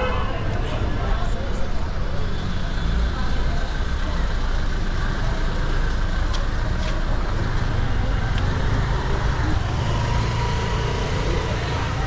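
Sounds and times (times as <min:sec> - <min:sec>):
faint voices of passers-by: 0:00.0 - 0:12.0
slow car traffic rumble: 0:00.0 - 0:12.0.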